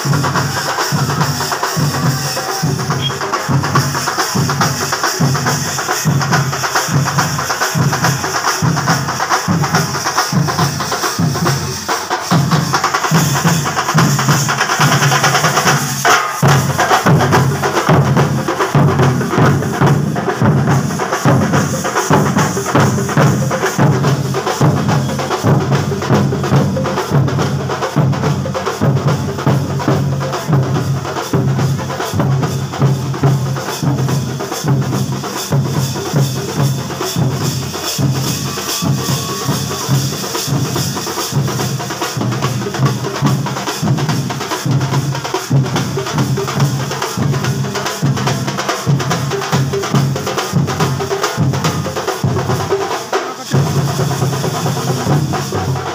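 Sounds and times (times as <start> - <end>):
drums and cymbals beat: 0.0 - 55.9.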